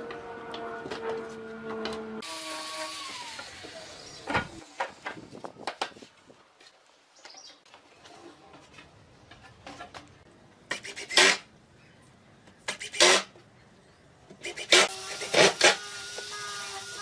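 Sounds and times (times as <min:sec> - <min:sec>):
power tool motor humming: 0:01.7 - 0:04.0, 0:14.4 - 0:17.0.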